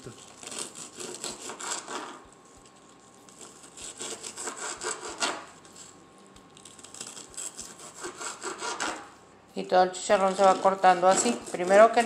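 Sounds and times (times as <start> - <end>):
knife sawing on cutting board: 0.4 - 2.2, 3.4 - 5.6, 7.0 - 9.1, 10.2 - 12.0.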